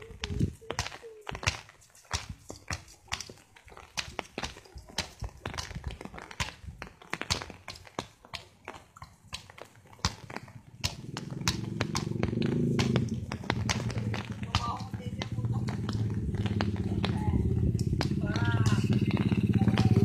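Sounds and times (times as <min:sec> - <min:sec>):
bare feet on wet concrete: 0:00.0 - 0:20.0
basketball bouncing: 0:00.0 - 0:20.0.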